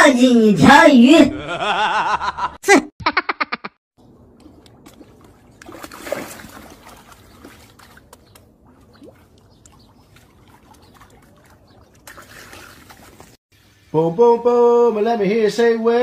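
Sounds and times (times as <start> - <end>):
water lapping against stone: 4.3 - 13.4.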